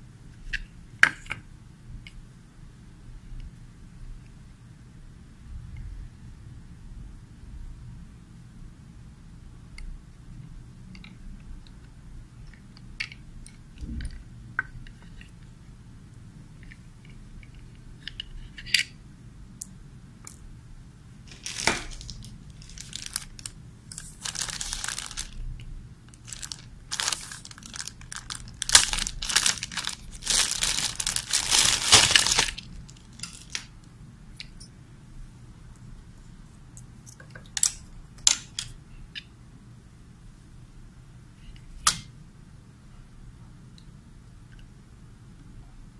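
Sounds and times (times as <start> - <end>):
plastic packaging crinkling: 21.3 - 25.4, 26.1 - 33.7.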